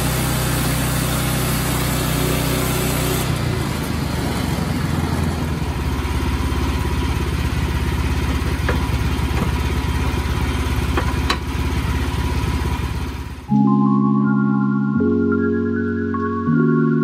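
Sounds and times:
sawmill engine running: 0:00.0 - 0:13.5.

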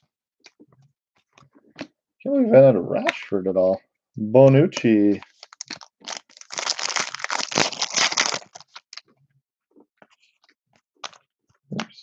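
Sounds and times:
wrapper tearing and crinkling: 0:05.2 - 0:09.0.

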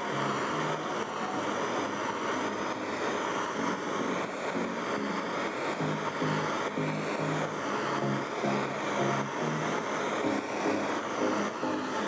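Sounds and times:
gas torch hissing: 0:00.0 - 0:12.0.

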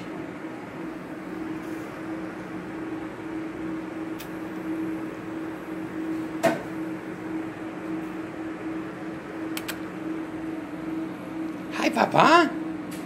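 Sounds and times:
electric fan motor hum: 0:00.0 - 0:13.0
faint click: 0:09.6 - 0:09.8.

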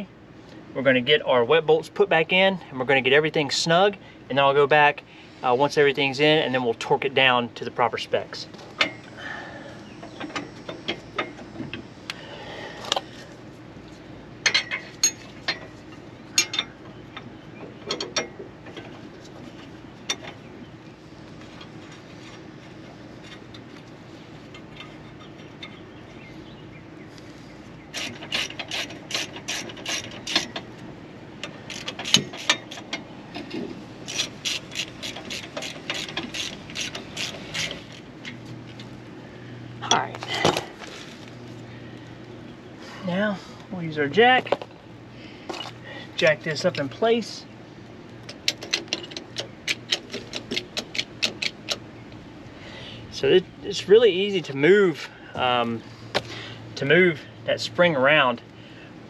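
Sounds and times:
ratchet wrench clicking: 0:27.9 - 0:30.6, 0:31.4 - 0:32.9, 0:34.0 - 0:38.0.

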